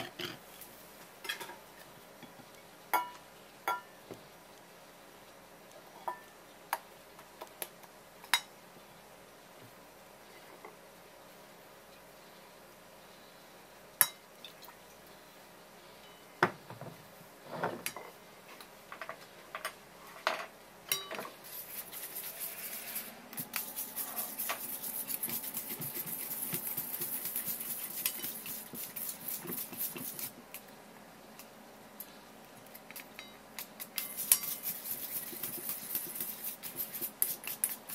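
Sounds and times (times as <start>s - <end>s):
whisk beating in metal bowl: 21.5s - 30.4s, 33.6s - 37.9s.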